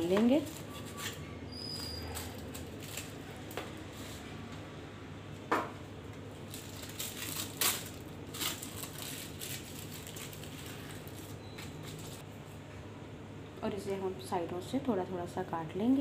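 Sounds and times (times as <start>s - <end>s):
paper crinkling and rustling: 1.8s - 3.5s, 6.4s - 12.2s.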